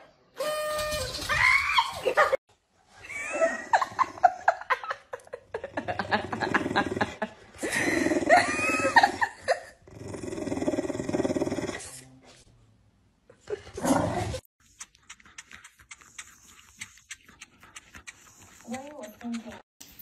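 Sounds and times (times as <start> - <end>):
dog growling and grumbling: 5.7 - 9.2, 9.8 - 12.0.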